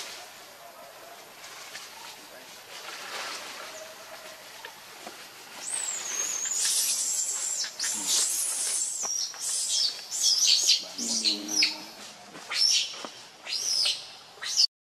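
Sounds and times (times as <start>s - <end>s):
high-pitched calls: 5.6s - 14.7s.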